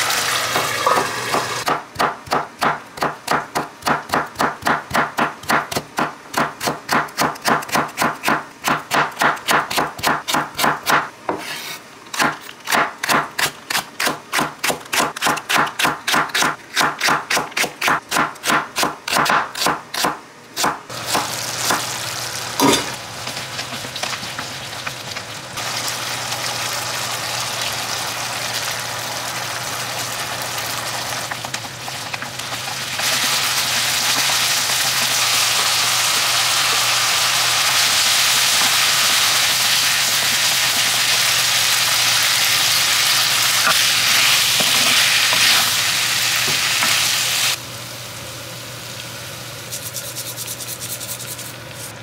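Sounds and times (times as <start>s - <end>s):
vegetables sizzling in frying pan: 0.0s - 1.7s, 20.9s - 50.5s
knife chopping on wooden board: 0.8s - 11.6s, 12.2s - 21.8s.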